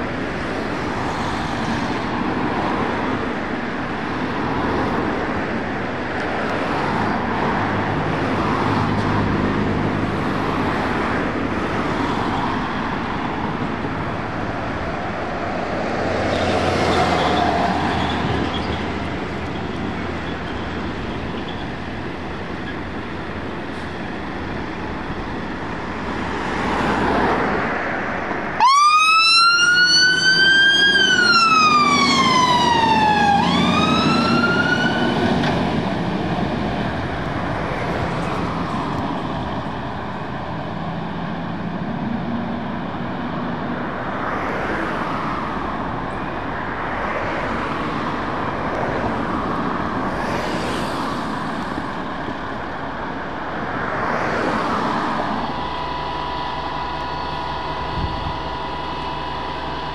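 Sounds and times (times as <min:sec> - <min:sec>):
fire engine diesel engine: 0:00.0 - 0:59.9
wail siren: 0:28.6 - 0:35.8, 0:54.9 - 0:59.9.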